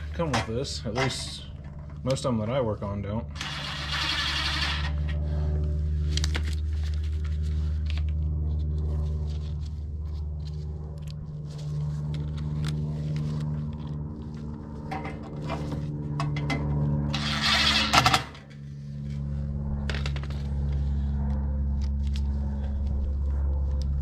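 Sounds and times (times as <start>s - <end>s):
hand tools clicking and scraping: 0.0s - 1.7s, 14.9s - 18.6s
low mechanical hum: 0.0s - 24.0s.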